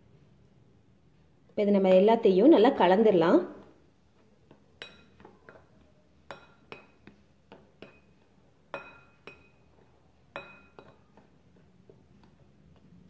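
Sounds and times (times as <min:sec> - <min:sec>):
spoon clinking against glass bowl: 0:04.8 - 0:05.7, 0:06.3 - 0:07.1, 0:07.8 - 0:11.1.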